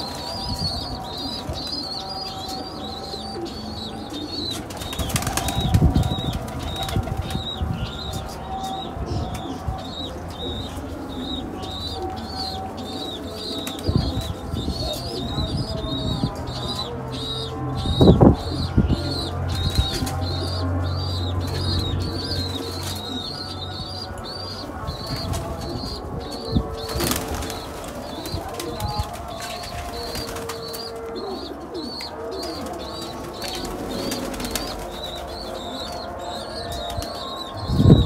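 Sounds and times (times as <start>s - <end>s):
wings flapping: 4.1s - 8.0s, 26.7s - 31.0s, 31.8s - 36.0s.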